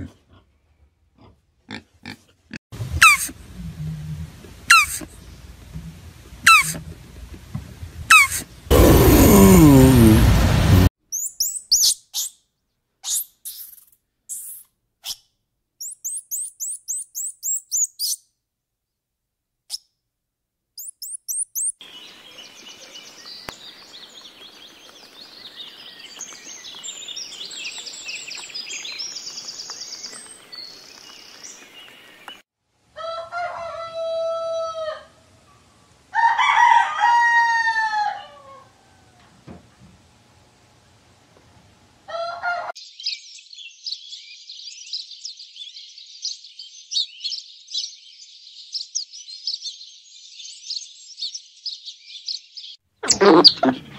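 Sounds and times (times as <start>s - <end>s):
monkey high-pitched chirps: 3.0s - 3.3s, 4.7s - 5.1s, 6.5s - 6.8s, 8.1s - 8.4s, 11.1s - 12.4s, 13.0s - 18.2s, 20.8s - 21.8s
rooster crowing: 32.9s - 35.2s, 36.1s - 39.3s, 42.1s - 42.7s.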